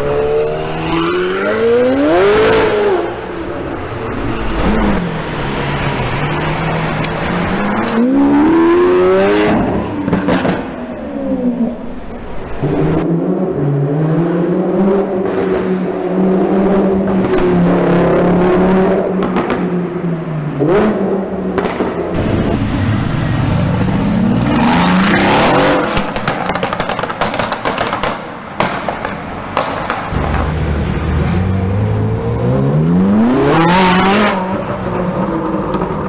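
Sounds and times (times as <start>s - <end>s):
exhaust pops and crackles: 25.8s - 30.4s
car engine revving: 30.1s - 35.9s
car accelerating away: 30.2s - 36.0s.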